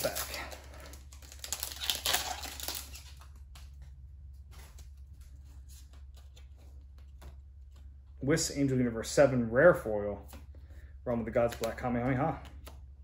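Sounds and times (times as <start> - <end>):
foil wrapper tearing and crinkling: 0.0 - 3.6
cards ticking and sliding: 0.0 - 8.2, 10.2 - 13.0.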